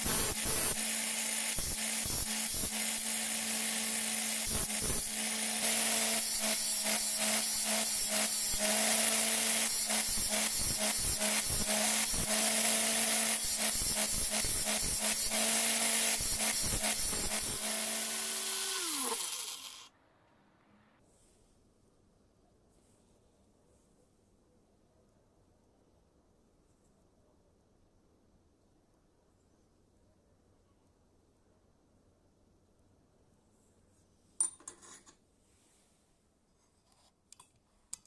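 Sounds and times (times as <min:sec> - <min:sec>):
angle grinder whining: 0:00.0 - 0:19.9
drill bit grinding on disc: 0:00.0 - 0:19.9.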